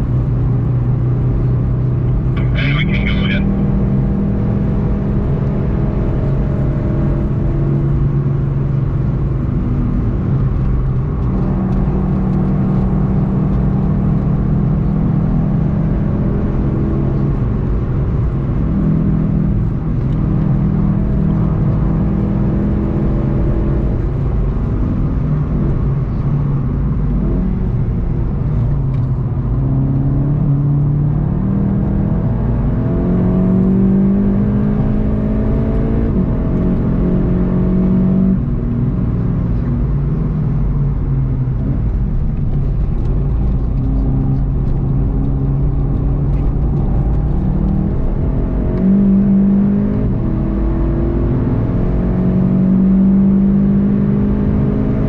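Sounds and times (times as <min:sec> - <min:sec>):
car engine under hard driving: 0:00.0 - 0:55.0
road and wind noise: 0:00.0 - 0:55.0.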